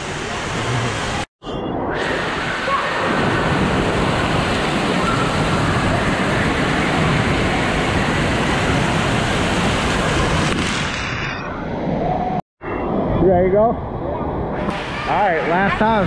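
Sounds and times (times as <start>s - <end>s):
water pouring and splashing: 2.0s - 11.2s.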